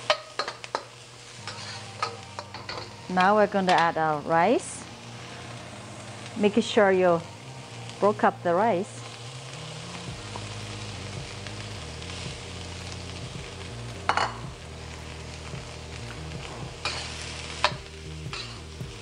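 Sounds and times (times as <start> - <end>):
metal spatula scraping wok: 0.0 - 4.0, 16.4 - 18.7
rice and onions sizzling in oil: 0.0 - 19.0.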